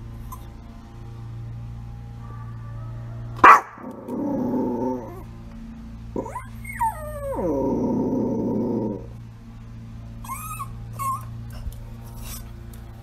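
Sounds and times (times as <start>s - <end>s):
dog yapping: 3.4s - 5.2s, 6.2s - 7.6s, 10.2s - 11.3s
dog growling: 3.4s - 5.3s, 6.2s - 9.2s
dog whining: 6.2s - 9.1s, 10.2s - 12.5s.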